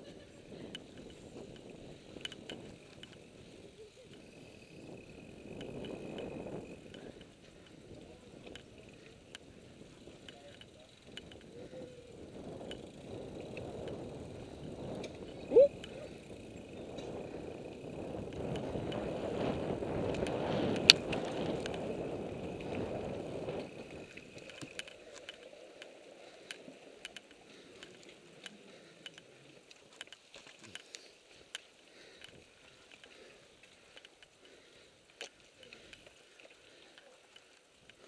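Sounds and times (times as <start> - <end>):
bike rattling: 0.0 - 38.0
bike tyres on dirt trail: 0.0 - 38.0
wind on microphone: 11.5 - 24.0.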